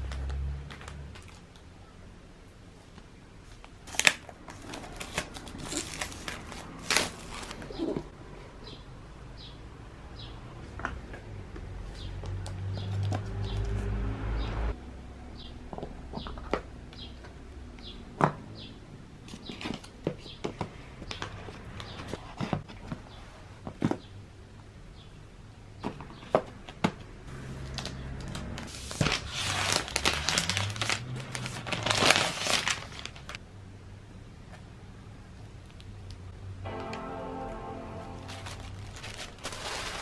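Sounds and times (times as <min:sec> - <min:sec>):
packaging rustling and crinkling: 0:03.6 - 0:08.0, 0:27.7 - 0:33.4, 0:38.4 - 0:40.0.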